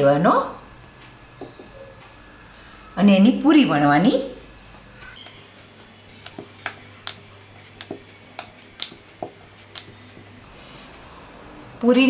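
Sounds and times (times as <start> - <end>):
rolling pin clicking on hard surface: 6.2 - 7.2, 7.8 - 10.3.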